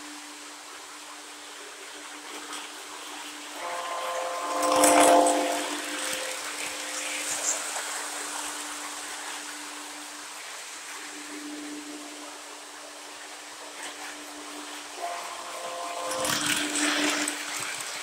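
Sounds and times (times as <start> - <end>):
model train wheels on track: 2.2 - 9.5, 13.2 - 18.0.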